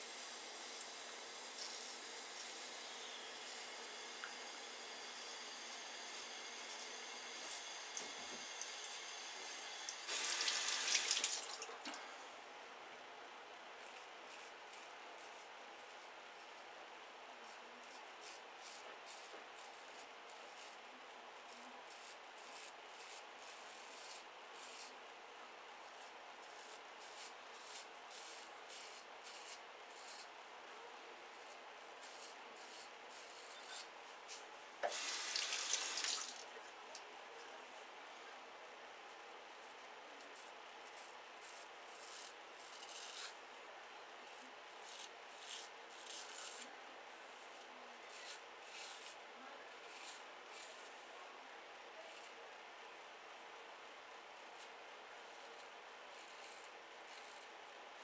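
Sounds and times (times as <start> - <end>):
razor scraping stubble: 0.8 - 11.4, 13.8 - 16.0, 17.4 - 20.8, 21.4 - 25.0, 25.8 - 30.3, 31.4 - 36.3, 40.9 - 43.4, 44.3 - 46.6, 47.5 - 49.2, 49.8 - 50.9, 55.3 - 57.5
sink tap running: 10.1 - 11.5, 34.8 - 36.4
razor blade scraping stubble: 41.0 - 43.4, 44.8 - 46.6, 56.1 - 57.5.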